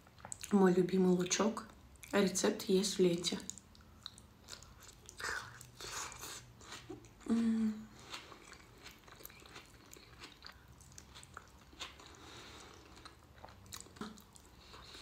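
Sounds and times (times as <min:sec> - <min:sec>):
person humming: 0:07.2 - 0:07.9
chewing onion crunches: 0:07.9 - 0:15.0.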